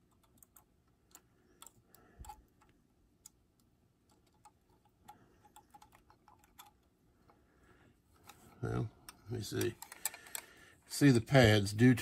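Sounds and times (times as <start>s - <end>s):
clicks of handling metal toy: 8.2s - 10.5s.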